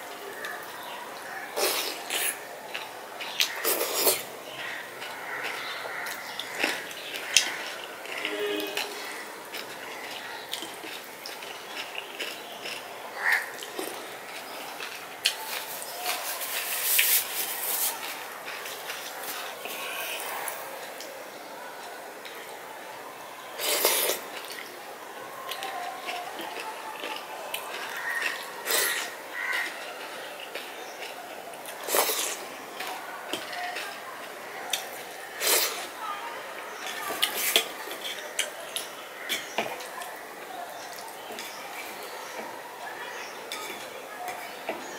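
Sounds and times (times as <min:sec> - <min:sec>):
chewing: 0:00.4 - 0:21.1, 0:25.4 - 0:36.0
rice mixed by hand squishing: 0:14.3 - 0:20.6.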